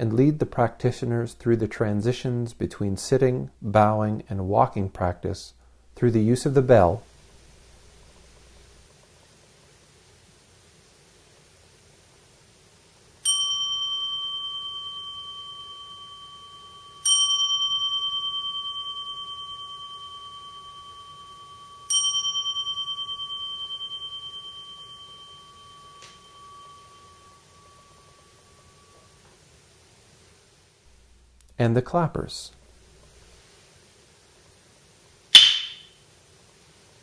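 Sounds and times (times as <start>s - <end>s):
bowl bell struck: 13.2s - 29.2s.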